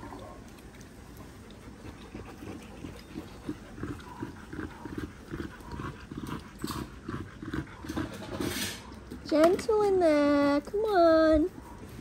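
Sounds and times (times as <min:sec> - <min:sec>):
puppies play-growling: 0:00.0 - 0:09.3.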